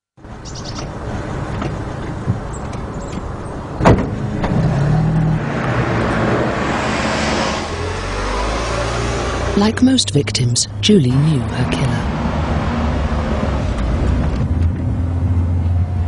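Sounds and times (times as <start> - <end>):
road noise: 0.2 - 16.0.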